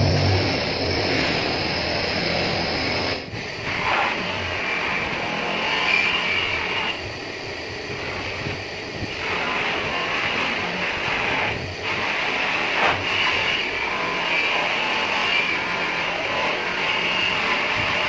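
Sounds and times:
buffing wheel grinding metal: 0:00.0 - 0:03.2.

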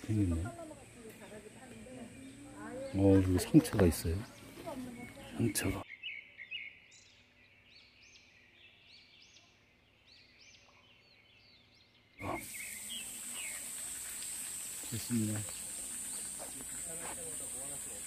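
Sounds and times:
high-pitched outdoor hiss: 0:00.0 - 0:05.8, 0:11.2 - 0:18.0.

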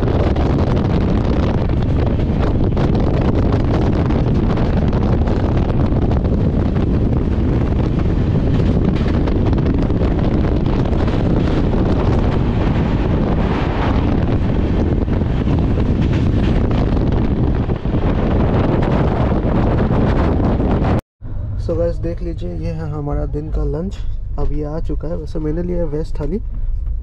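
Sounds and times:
train rumbling at speed: 0:00.0 - 0:27.0
wind buffeting microphone: 0:00.0 - 0:27.0.

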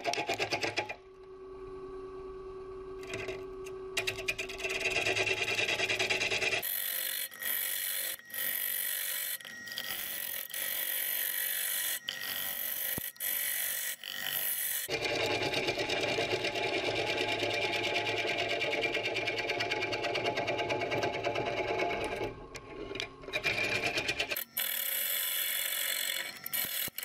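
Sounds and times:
gouge scraping wood on lathe: 0:04.0 - 0:15.2.

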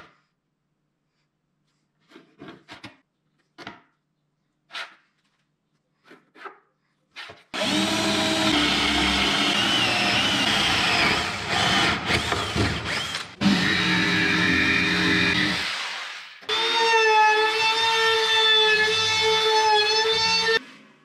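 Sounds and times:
cordless drill boring into wood: 0:07.6 - 0:20.6
jigsaw cutting wood: 0:07.6 - 0:20.6.

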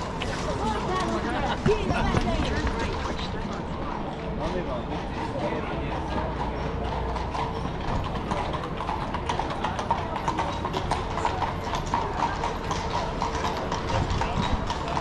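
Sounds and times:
horse hooves clip-clopping: 0:00.0 - 0:15.0
street background noise: 0:00.0 - 0:15.0.

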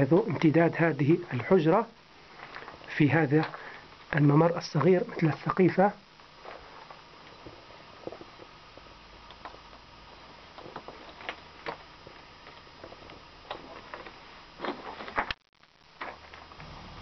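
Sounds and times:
steady hiss: 0:00.0 - 0:17.0
footsteps on stone rubble: 0:06.3 - 0:08.9.

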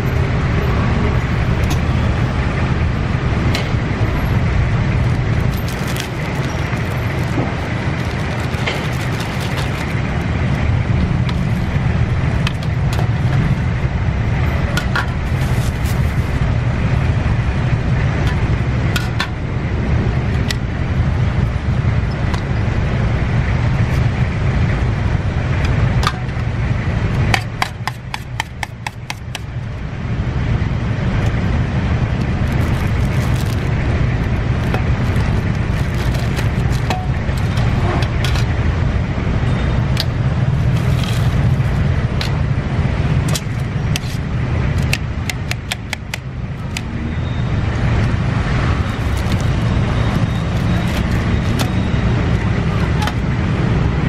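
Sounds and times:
road traffic rumble: 0:00.0 - 0:54.0.

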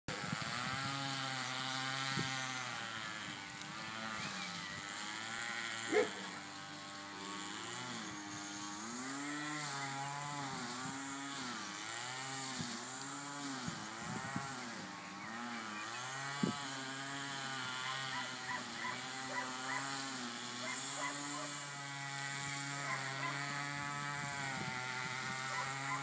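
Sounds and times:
small engine running: 0:00.1 - 0:26.0.

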